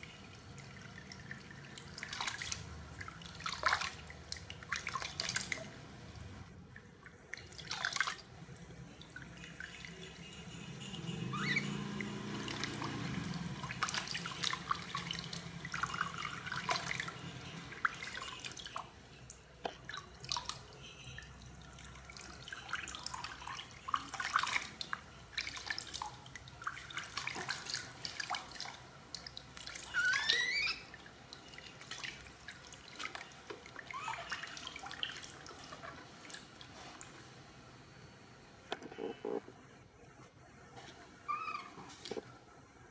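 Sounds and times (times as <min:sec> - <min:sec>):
water splashing into basin: 0:00.0 - 0:37.2
short rising squeal: 0:11.1 - 0:12.4.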